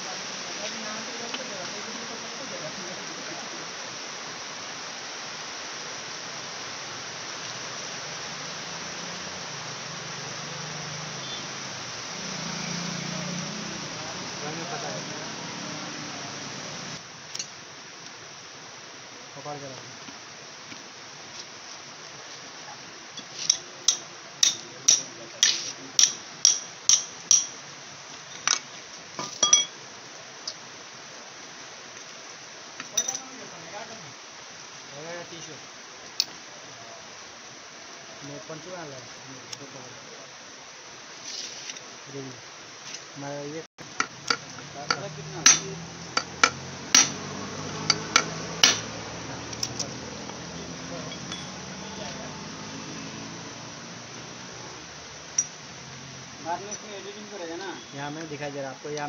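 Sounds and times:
background hiss: 0.0 - 59.0
hammer striking wrench: 23.5 - 27.6, 44.0 - 48.9
light metal clinks: 28.3 - 29.8, 32.8 - 33.4, 44.3 - 48.9, 49.5 - 51.8, 55.3 - 55.6.

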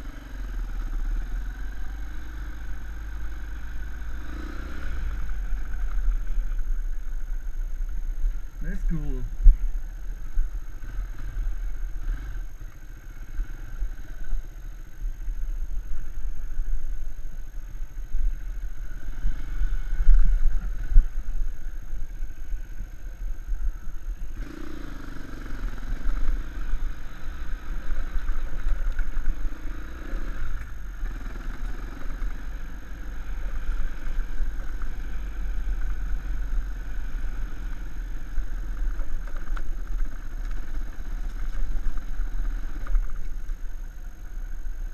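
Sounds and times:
dirt bike engine: 0.0 - 44.9
wind rumble on microphone: 15.4 - 24.4.

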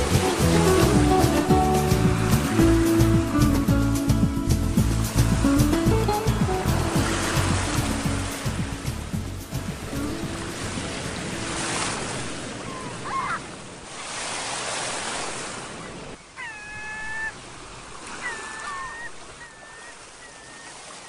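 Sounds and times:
ocean surf washing onto beach: 0.0 - 16.2.

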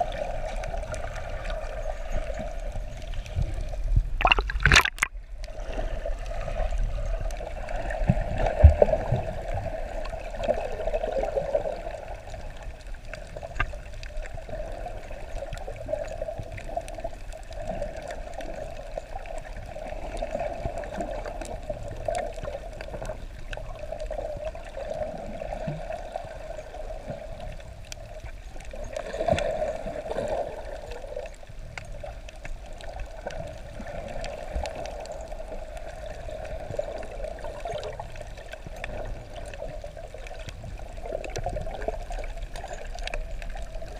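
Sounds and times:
muffled underwater rushing: 0.0 - 43.9
faint clicks: 31.0 - 43.9.

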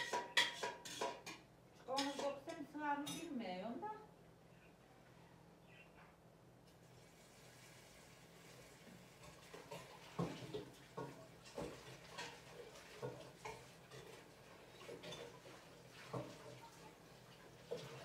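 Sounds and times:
kitchenware clicking and knocking: 0.0 - 3.3.

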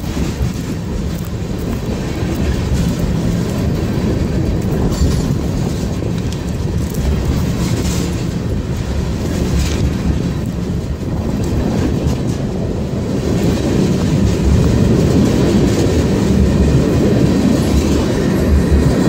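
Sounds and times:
freight train wheels rumbling on rails: 0.0 - 19.0.

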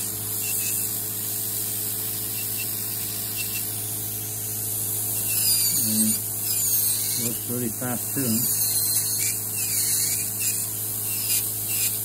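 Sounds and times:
nail drill motor hum: 0.0 - 12.0.

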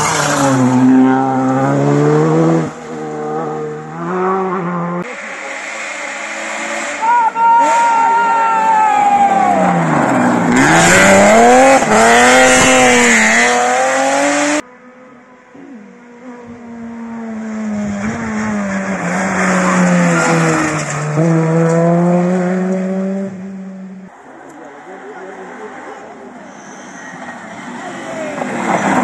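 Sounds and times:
rally car engines revving: 0.0 - 29.0.

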